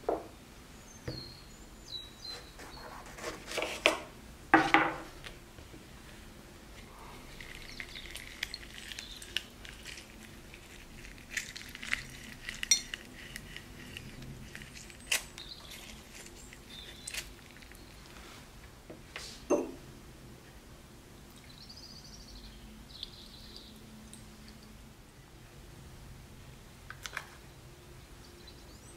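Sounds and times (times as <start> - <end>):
juice dripping into dish: 7.3 - 13.5.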